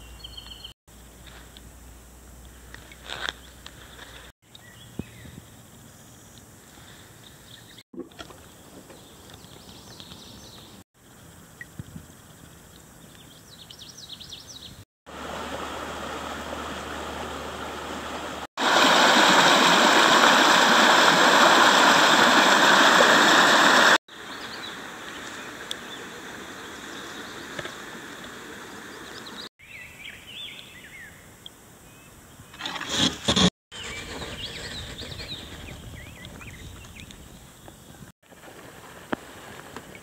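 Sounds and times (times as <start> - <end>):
birds chirping: 7.2 - 10.8, 33.8 - 38.1
creek water running over riffles: 15.1 - 29.5.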